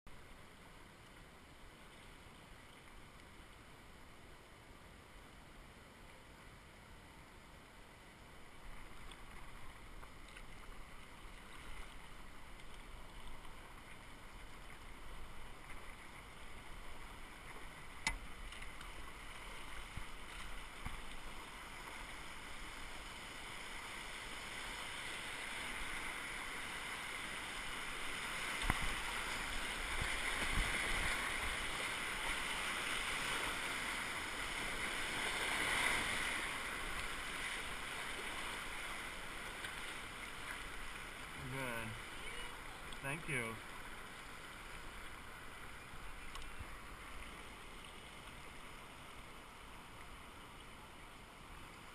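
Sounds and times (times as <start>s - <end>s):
rushing whitewater: 0.1s - 51.9s.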